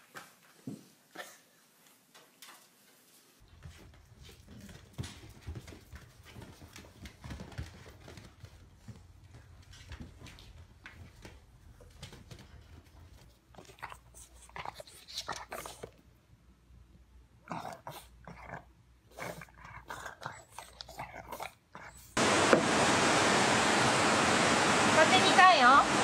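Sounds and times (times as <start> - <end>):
puppies play-fighting: 17.5 - 22.2.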